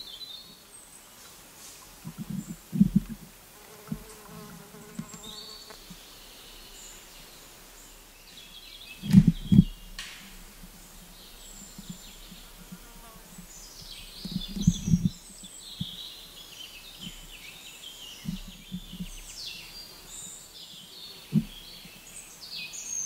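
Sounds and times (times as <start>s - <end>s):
flying insect buzzing: 2.1s - 5.9s.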